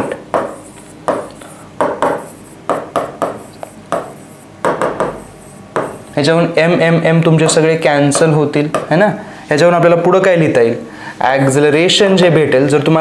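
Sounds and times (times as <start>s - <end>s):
marker scratching on whiteboard: 0.0s - 6.3s.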